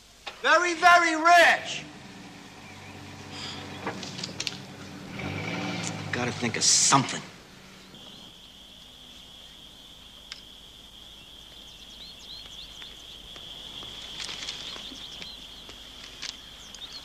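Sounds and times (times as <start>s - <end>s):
chirring insect chorus: 0.0s - 17.0s
faint clicks: 10.2s - 10.5s.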